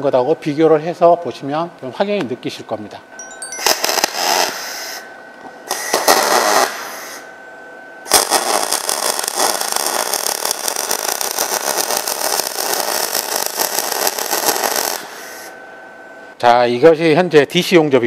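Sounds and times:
welding arc crackling: 0:03.6 - 0:05.0, 0:05.7 - 0:07.2, 0:08.1 - 0:15.5.

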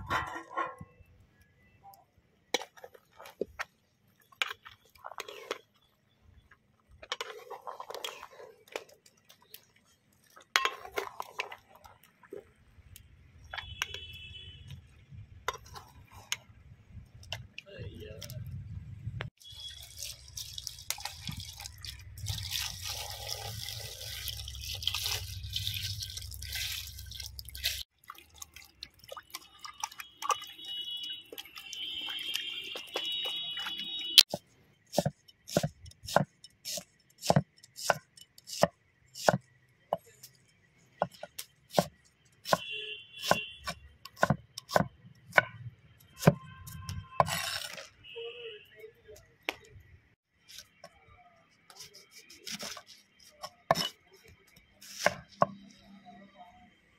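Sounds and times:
water splashing into a pot: 0:19.4 - 0:34.1.

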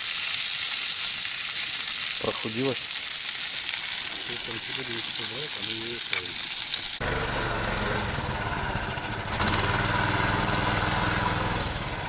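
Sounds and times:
food sizzling in a frying pan: 0:00.0 - 0:07.0.

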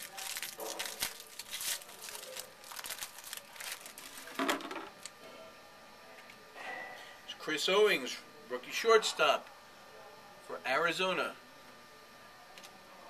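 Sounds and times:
foil wrappers crinkling: 0:00.0 - 0:05.1.

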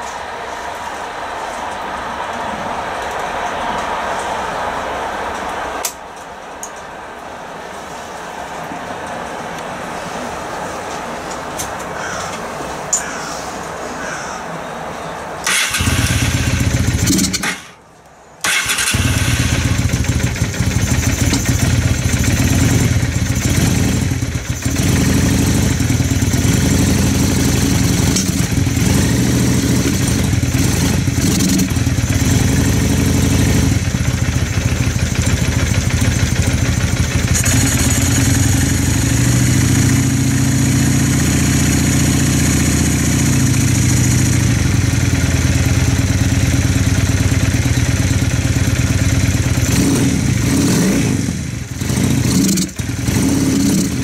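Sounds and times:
motorcycle engine idling: 0:15.5 - 0:17.5, 0:18.5 - 0:49.7.

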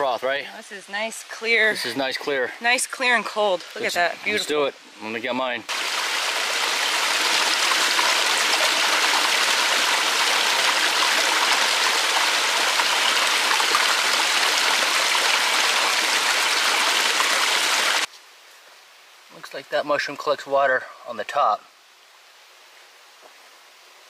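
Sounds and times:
stream splashing into pool: 0:05.7 - 0:18.1.

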